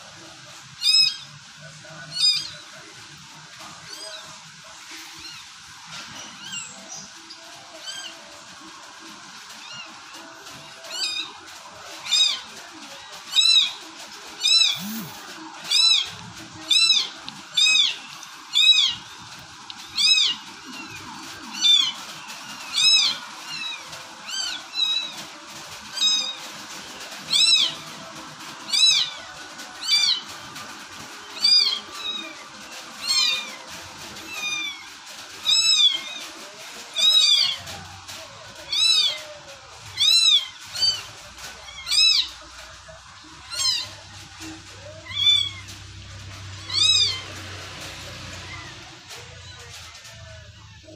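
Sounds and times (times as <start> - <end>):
kittens mewing: 14.4 - 16.1, 46.6 - 47.4.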